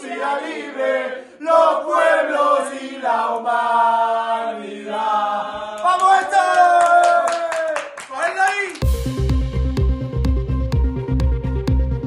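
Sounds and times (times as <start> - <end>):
sharp claps: 5.8 - 9.0.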